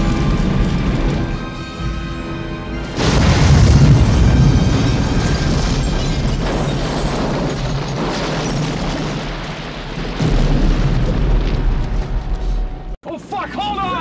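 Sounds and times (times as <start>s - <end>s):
loud continuous blast: 0.0s - 13.0s
deep boom: 2.9s - 13.0s.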